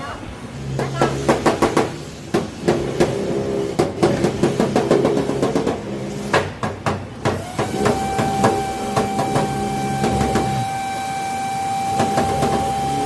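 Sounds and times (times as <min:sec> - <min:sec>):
hammer knocks on sheet metal: 0:00.8 - 0:03.2, 0:03.8 - 0:10.6, 0:12.0 - 0:12.7.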